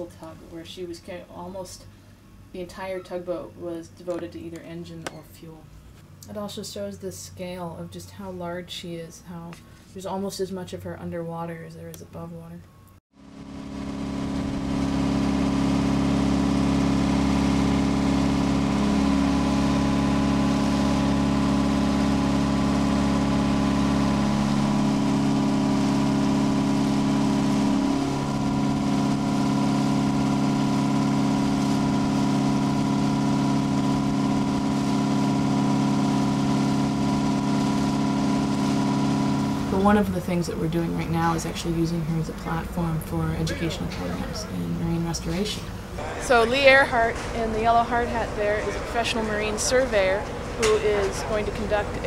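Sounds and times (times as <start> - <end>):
engine running steadily: 13.2 - 52.0.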